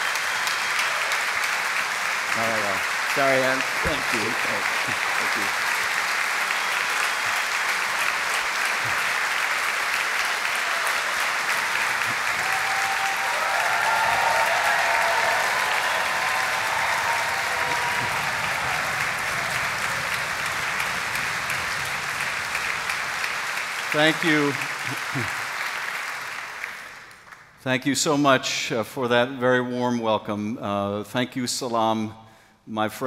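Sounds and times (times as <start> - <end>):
audience applauding: 0.0 - 27.6.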